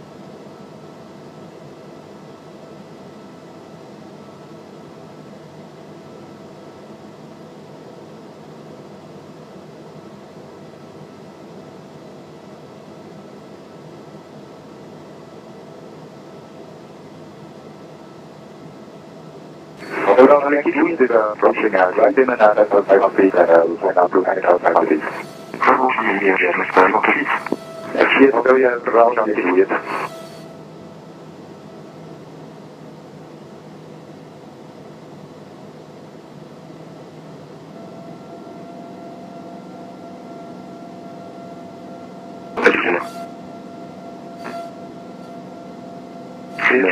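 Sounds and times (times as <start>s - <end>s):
airplane engine and propeller drone: 0.0s - 46.9s.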